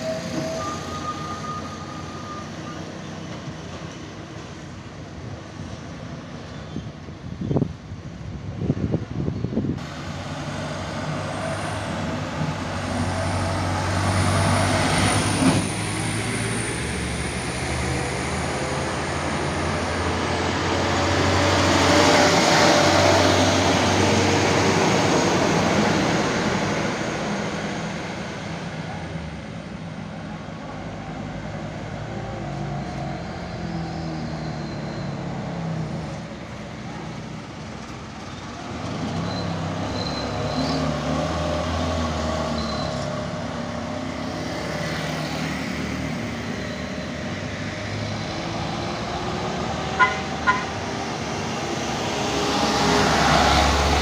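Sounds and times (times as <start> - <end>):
diesel trucks passing: 0.0 - 54.0
tyre and road noise: 30.1 - 54.0.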